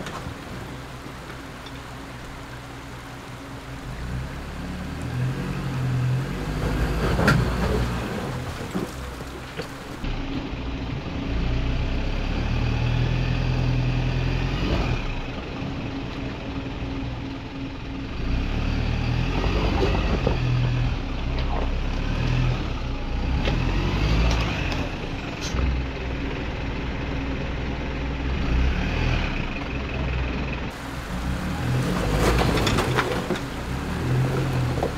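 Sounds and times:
diesel truck engine under load: 0:00.0 - 0:34.9
knocks of tyres on rocks: 0:06.5 - 0:10.0, 0:30.7 - 0:34.9.

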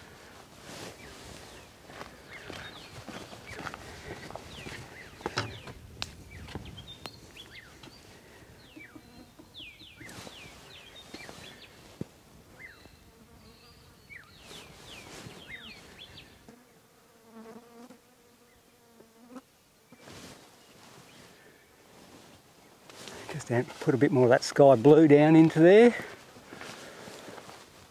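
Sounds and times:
soft rustles: 0:00.0 - 0:12.7, 0:14.3 - 0:16.2, 0:20.0 - 0:24.7, 0:25.6 - 0:27.9
birds whistling high falling calls: 0:02.3 - 0:11.8, 0:12.6 - 0:16.4
fly buzzing: 0:07.7 - 0:20.6.

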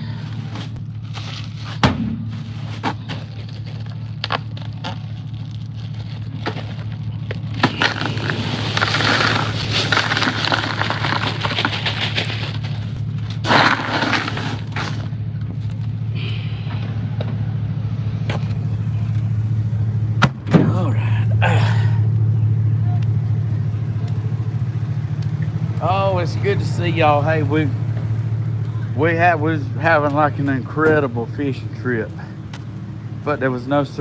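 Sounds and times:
low hum: 0:00.0 - 0:33.7
plastic bag rustling: 0:02.4 - 0:15.1.

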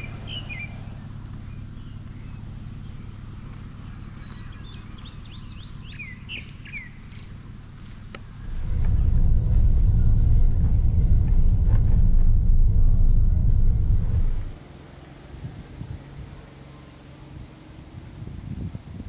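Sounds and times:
birds chirping: 0:00.0 - 0:08.8, 0:13.9 - 0:19.0
car driving rumble from inside: 0:00.0 - 0:19.0
low steady hum: 0:00.0 - 0:19.0.

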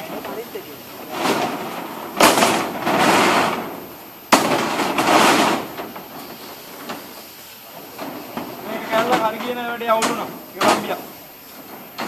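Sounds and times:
sudden knocks with noisy rush: 0:01.1 - 0:06.2.

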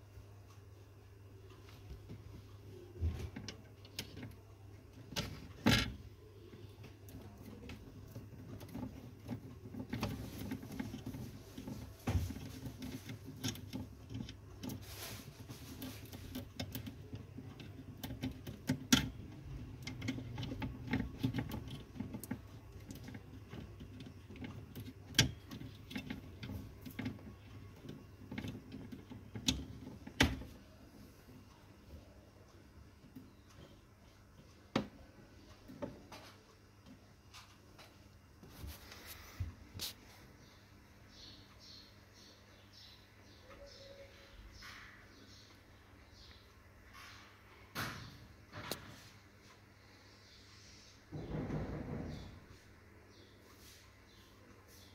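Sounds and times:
cable plugs clicking and knocking: 0:02.9 - 0:32.1, 0:33.0 - 0:38.4
rustling: 0:03.0 - 0:31.6, 0:37.2 - 0:40.5.

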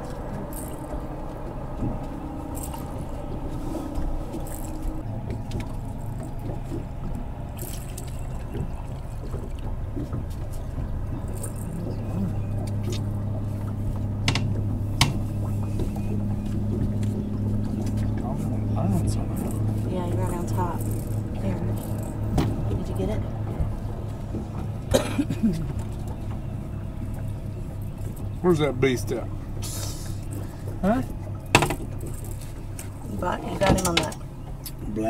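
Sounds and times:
outboard motor running: 0:00.0 - 0:35.0.

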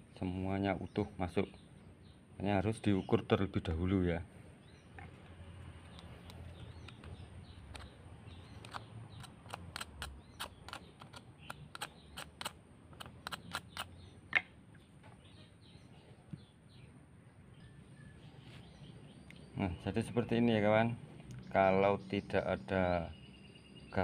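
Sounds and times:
faint outdoor background: 0:00.0 - 0:24.0
scissors metallic clicks: 0:08.6 - 0:13.9.

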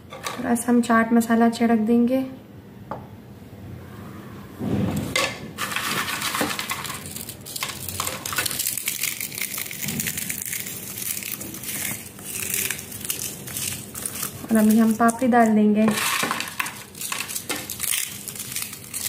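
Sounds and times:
crisp wafers crackling and crunching: 0:05.6 - 0:19.0.

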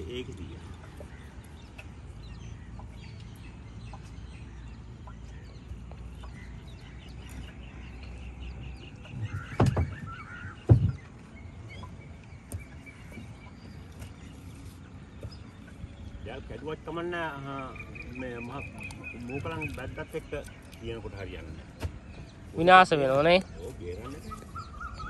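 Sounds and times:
faint bird calls: 0:00.0 - 0:22.6, 0:23.4 - 0:25.0
sharp knocks in canoe: 0:09.1 - 0:11.1, 0:21.8 - 0:22.3.

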